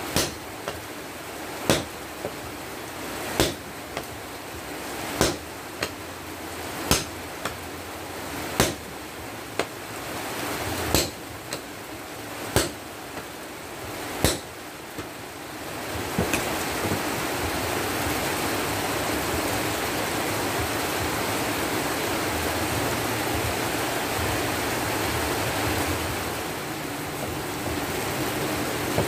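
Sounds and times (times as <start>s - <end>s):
steady rushing noise: 0.0s - 29.0s
sledgehammer blows on anvil: 6.9s - 7.6s, 10.9s - 11.6s.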